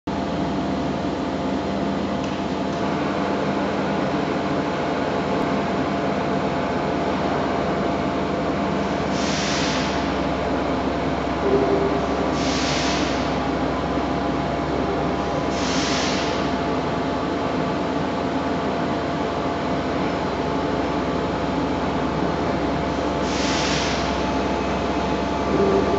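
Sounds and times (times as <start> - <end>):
milling machine motor hum: 0.2 - 25.9
brief louder tone: 25.5 - 25.9.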